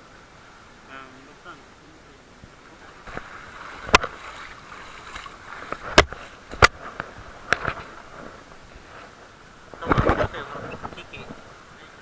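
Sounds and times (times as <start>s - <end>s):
feet wading through water: 2.6s - 9.9s
sharp knocks and splashes: 3.0s - 8.4s.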